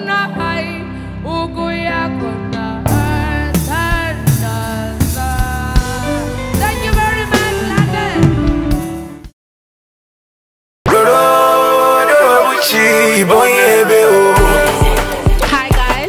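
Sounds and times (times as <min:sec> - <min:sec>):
woman singing into microphone: 0:00.0 - 0:08.7, 0:10.9 - 0:16.0
drums: 0:02.6 - 0:09.3, 0:14.4 - 0:16.0.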